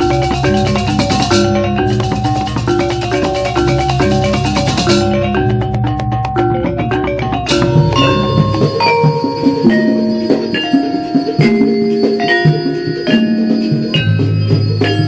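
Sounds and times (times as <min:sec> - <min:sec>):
tuned metal keys struck: 0:07.4 - 0:15.0
low drum or gong: 0:07.5 - 0:12.4.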